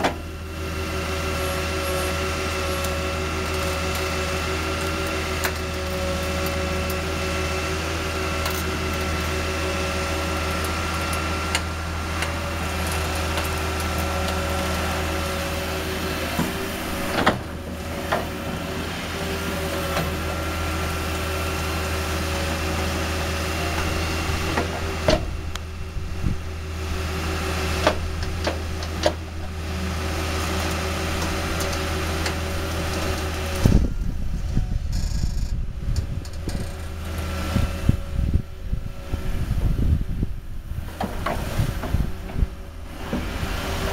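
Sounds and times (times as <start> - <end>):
excavator engine hum: 0.0 - 43.9.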